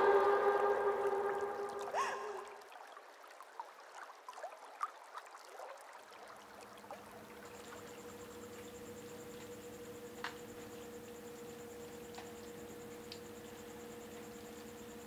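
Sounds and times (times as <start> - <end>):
faint high pulsing tone: 0.0 - 2.7, 7.3 - 15.0
steady low hum: 0.0 - 2.7, 6.8 - 15.0
trickling gurgling water: 0.0 - 10.0.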